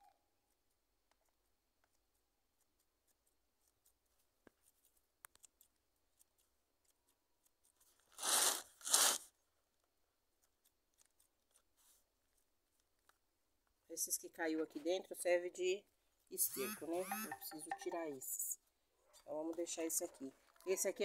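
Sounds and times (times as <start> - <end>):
scissors scraping: 10.4 - 11.8.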